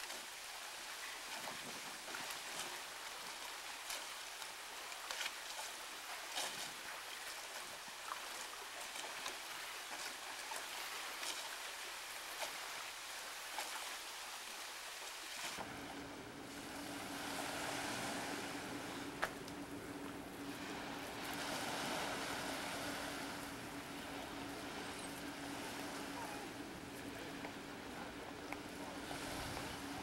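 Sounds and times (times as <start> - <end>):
water at a shoreline: 0.0 - 30.0
wind: 0.0 - 30.0
low hum: 15.6 - 30.0.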